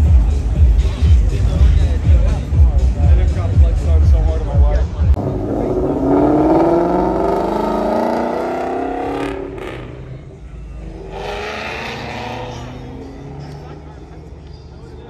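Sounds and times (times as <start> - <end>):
car accelerating hard: 5.2 - 14.4
car driving by: 5.2 - 14.5.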